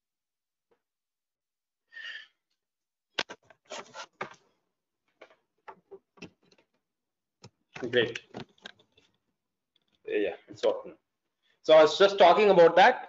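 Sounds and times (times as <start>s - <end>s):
equipment handling clicks and knocks: 7.4s - 9.1s.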